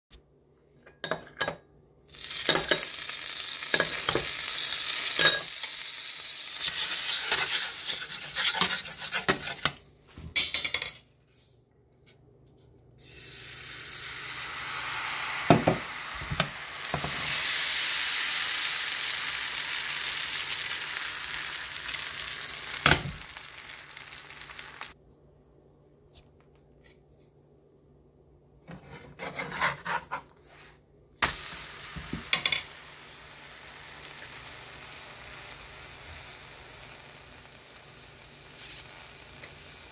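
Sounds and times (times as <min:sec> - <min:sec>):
pan sizzling: 0:02.1 - 0:10.8, 0:13.0 - 0:25.0, 0:31.2 - 0:39.9
spatula clicking and scraping: 0:06.7 - 0:09.8.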